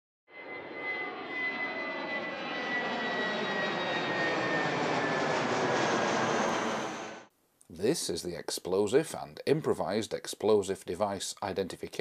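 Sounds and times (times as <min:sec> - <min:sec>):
jet airliner flying over: 0:00.3 - 0:07.3.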